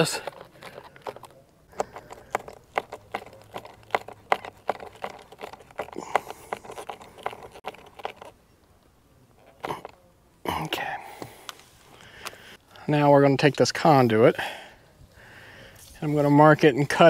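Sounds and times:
screwdriver clicking and scraping: 0.0s - 8.4s.

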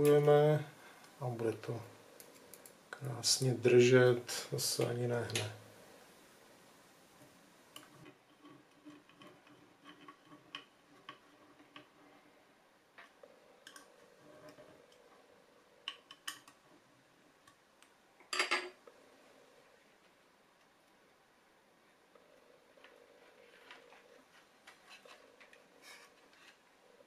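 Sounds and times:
rustling of wires and parts: 22.7s - 27.0s.

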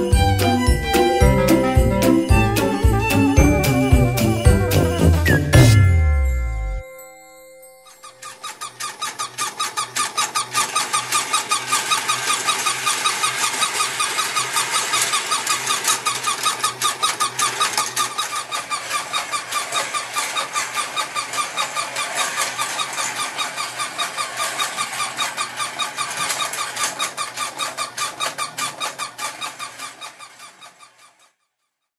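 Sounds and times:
toy motor hum: 0.0s - 5.4s, 7.8s - 31.4s.

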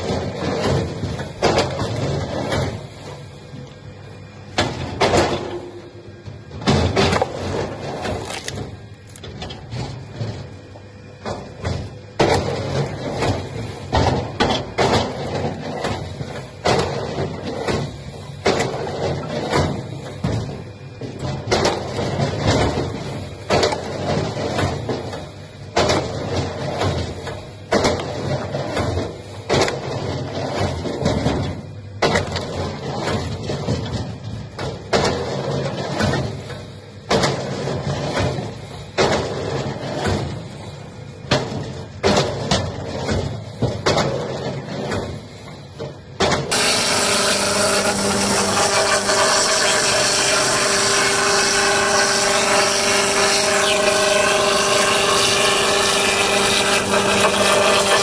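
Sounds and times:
machinery humming: 0.0s - 43.6s, 44.2s - 58.0s
wood cracking and crunching: 8.1s - 9.2s.

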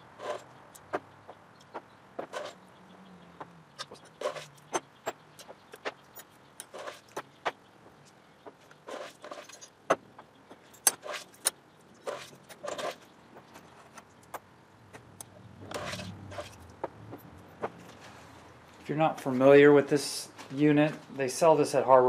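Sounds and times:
small metal parts clinking: 8.0s - 14.4s.

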